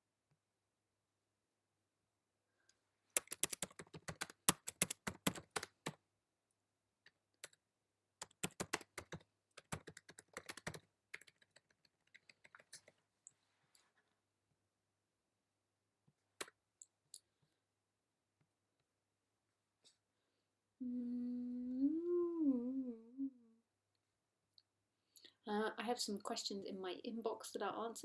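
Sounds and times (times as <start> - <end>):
typing on a computer keyboard: 3.2 - 6.0, 8.2 - 13.0.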